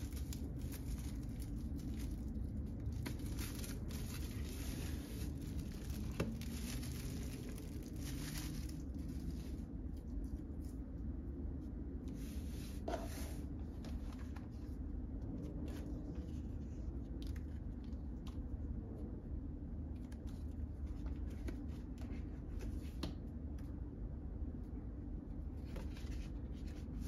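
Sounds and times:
plastic bag crinkling: 0.0 - 9.6
cardboard album being handled: 0.0 - 10.8, 12.1 - 18.4, 20.0 - 23.2, 25.5 - 27.0
low background hum: 0.0 - 27.0.

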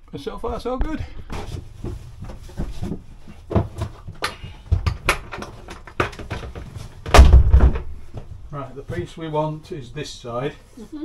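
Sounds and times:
flooring planks knocking and clattering: 1.2 - 8.3.

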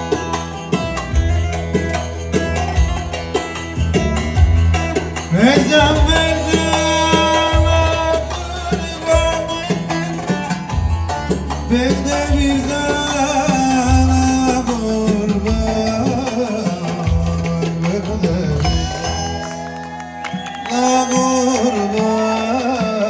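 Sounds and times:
heavy low beat: 0.0 - 19.3
folk dance music with lute: 0.0 - 23.0
person singing: 5.3 - 10.8, 11.6 - 19.7, 20.6 - 23.0.

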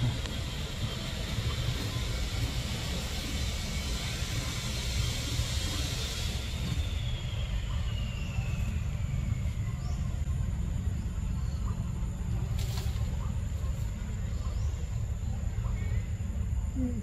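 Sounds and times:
high hiss: 0.0 - 9.5
faint whine falling in pitch: 0.0 - 17.0
low rumble: 0.0 - 17.0.

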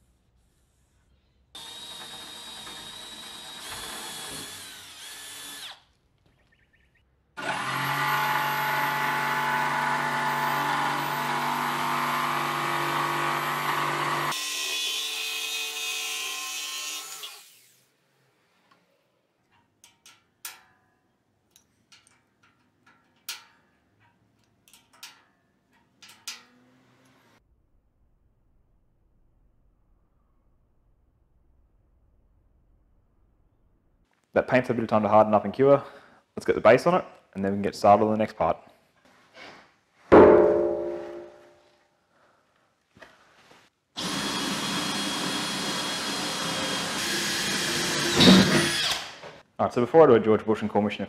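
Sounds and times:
jigsaw cutting wood: 1.6 - 5.8, 7.4 - 17.7, 44.0 - 49.4.

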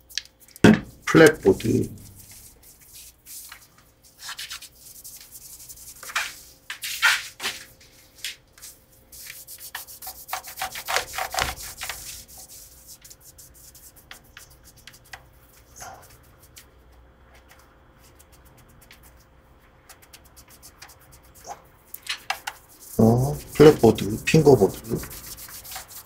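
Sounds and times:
cloth rubbing guitar fretboard: 0.9 - 2.6, 22.6 - 26.0.

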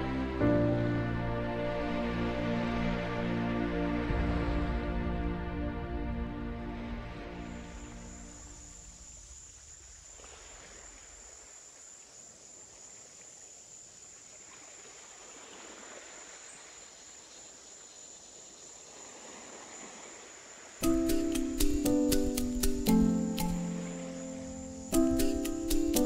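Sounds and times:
music: 0.0 - 8.8, 20.8 - 26.0
cricket-like trill: 7.3 - 14.5, 16.1 - 26.0.

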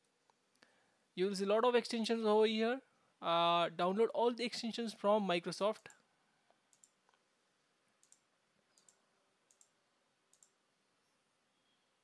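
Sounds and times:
faint computer mouse clicks: 5.8 - 7.2, 8.0 - 10.6.

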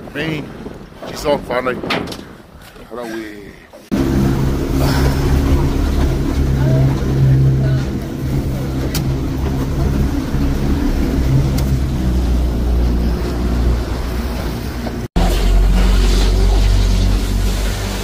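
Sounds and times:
motorboat engine running: 3.9 - 18.0
rushing noise: 3.9 - 18.0.

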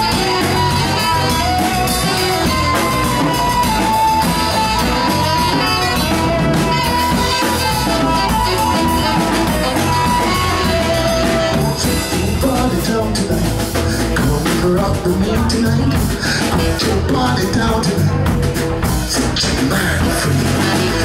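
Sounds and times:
saxophone holding notes: 0.0 - 12.4
live latin rock band: 0.0 - 21.0.

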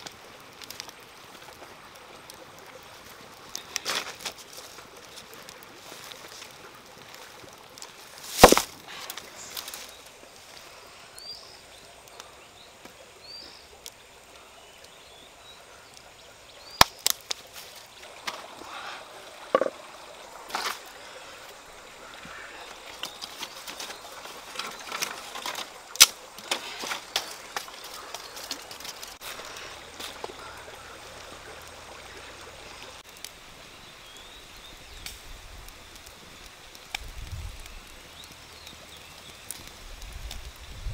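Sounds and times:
fire crackling: 0.0 - 40.9
wood knocking and cracking: 8.3 - 9.8, 19.5 - 19.8.

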